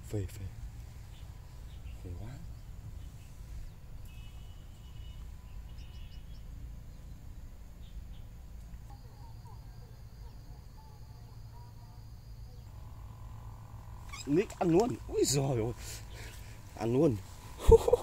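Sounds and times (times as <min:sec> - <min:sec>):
low steady rumble: 0:00.0 - 0:18.0
faint bird calls: 0:00.8 - 0:18.0
high insect whine: 0:01.0 - 0:18.0.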